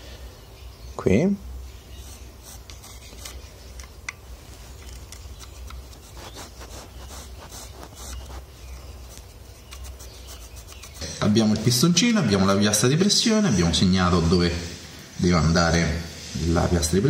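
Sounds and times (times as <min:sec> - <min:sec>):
pencil scratching on plywood: 0:05.7 - 0:11.0.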